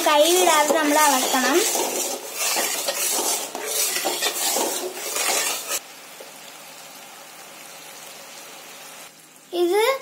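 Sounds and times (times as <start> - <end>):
spatula stirring and scraping: 0.0 - 5.8
syrup boiling in metal pan: 0.1 - 9.4.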